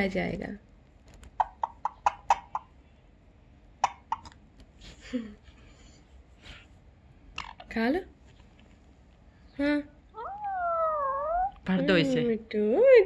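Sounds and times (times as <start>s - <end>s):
beak tapping on clay pot: 1.4s - 2.7s.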